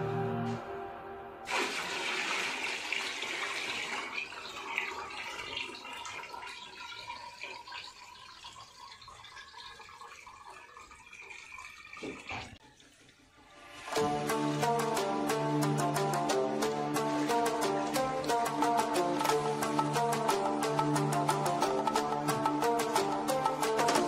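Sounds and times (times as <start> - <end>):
liquid pouring and splashing: 1.5 - 14.0.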